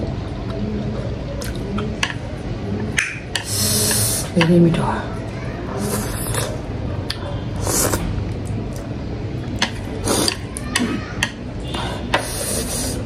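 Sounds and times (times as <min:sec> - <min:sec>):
steady low hum: 0:00.0 - 0:13.0
slurping noodles: 0:05.8 - 0:06.6, 0:07.6 - 0:08.1, 0:10.0 - 0:10.4, 0:12.2 - 0:13.0.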